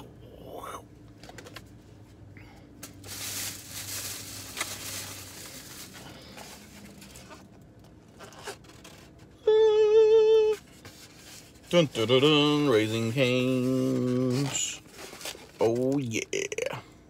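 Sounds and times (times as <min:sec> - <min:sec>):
paper bag rustling: 0:02.8 - 0:09.3, 0:10.6 - 0:16.5.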